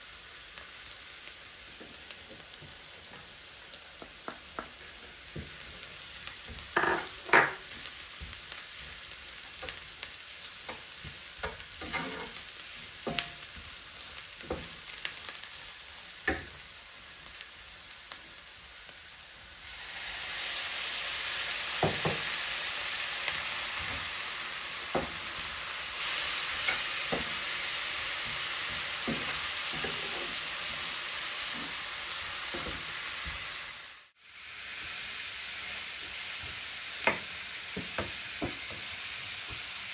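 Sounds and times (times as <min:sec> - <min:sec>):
onions and spices sizzling in a pan: 0:00.0 - 0:39.9
wooden spatula scraping a pan: 0:04.5 - 0:14.8, 0:24.9 - 0:33.6.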